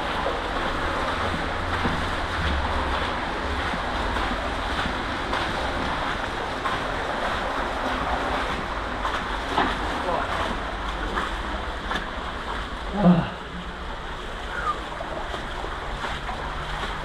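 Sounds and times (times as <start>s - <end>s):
brook water flowing: 0.0s - 17.0s.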